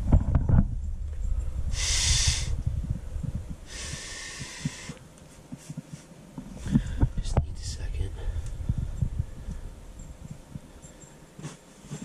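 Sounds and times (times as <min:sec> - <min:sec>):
person breathing out hard: 0:01.7 - 0:02.6, 0:03.7 - 0:05.0.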